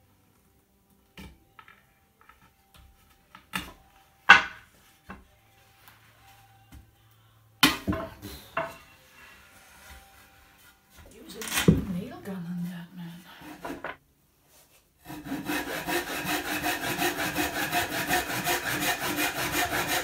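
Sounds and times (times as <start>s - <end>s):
wooden slats knocking together: 3.5s - 4.6s.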